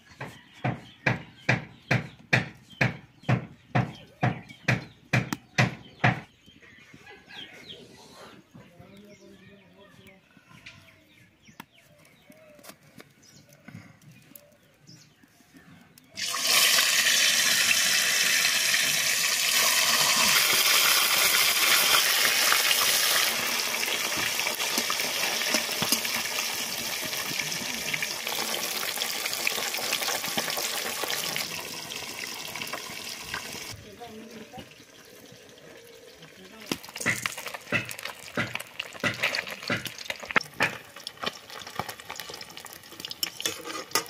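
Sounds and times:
fish sizzling in hot oil: 16.2 - 44.0.

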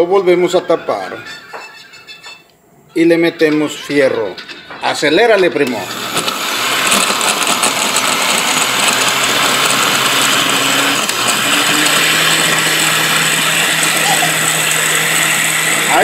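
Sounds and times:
blender whirring: 5.6 - 16.0.

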